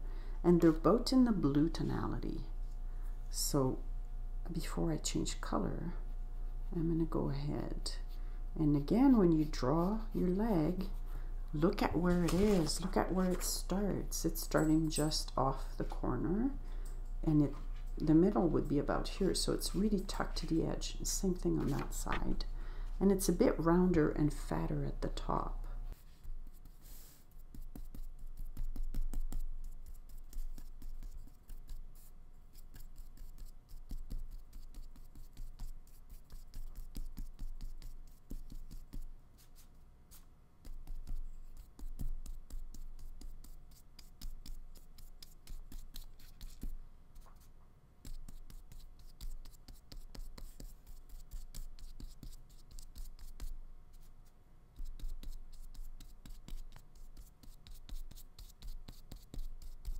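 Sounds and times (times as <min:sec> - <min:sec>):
paintbrush scratching on paper: 0:25.9 - 0:59.9.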